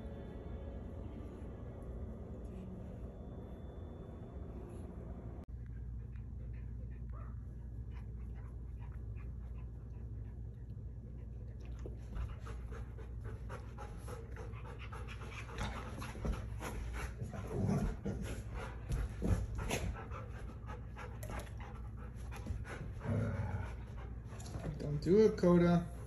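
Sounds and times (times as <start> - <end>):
dogs panting rapidly: 5.7 - 26.0.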